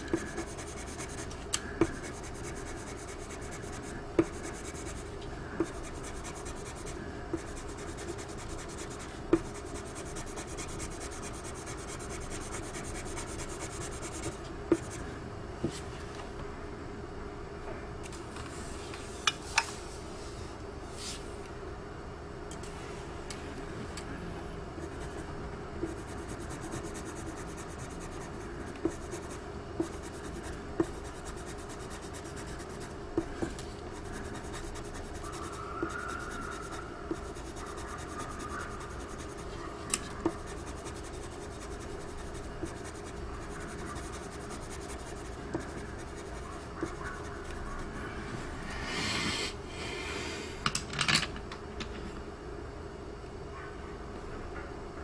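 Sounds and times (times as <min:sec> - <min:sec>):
pencil shading on paper: 0:00.1 - 0:05.0, 0:05.6 - 0:15.0, 0:25.8 - 0:33.3, 0:33.9 - 0:39.5, 0:40.2 - 0:47.9.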